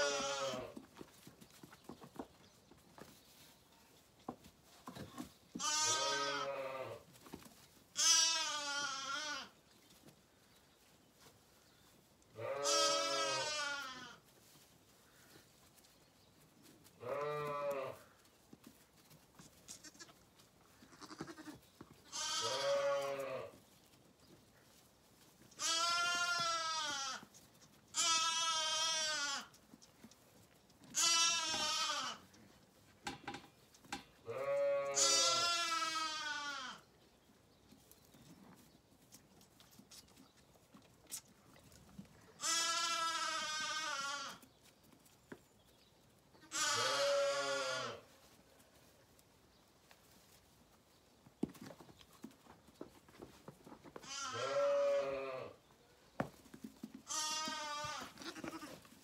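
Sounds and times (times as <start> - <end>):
lambs bleating: 0.0 - 0.8, 5.6 - 7.0, 7.9 - 9.5, 12.4 - 14.2, 17.0 - 18.2, 19.6 - 20.2, 20.8 - 23.5, 25.5 - 27.3, 27.9 - 29.6, 30.9 - 32.2, 34.3 - 36.8, 42.4 - 44.4, 46.4 - 48.0, 54.0 - 55.6, 57.0 - 58.9.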